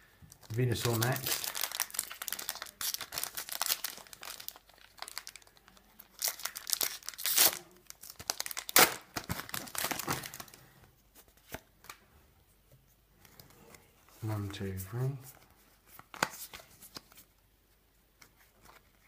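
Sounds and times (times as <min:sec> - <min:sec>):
foil pack crackling: 0:00.4 - 0:10.6
foil tearing: 0:06.1 - 0:09.0.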